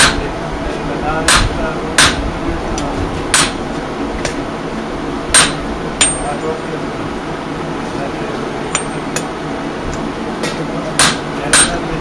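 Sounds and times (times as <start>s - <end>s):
hammer striking iron on anvil: 0.0s - 0.2s, 1.3s - 2.2s, 3.3s - 3.6s, 5.3s - 6.4s, 8.7s - 9.3s, 10.4s - 12.0s
steady background hum: 0.0s - 12.0s
anvil ringing: 5.3s - 6.4s, 8.7s - 9.3s, 11.0s - 11.8s.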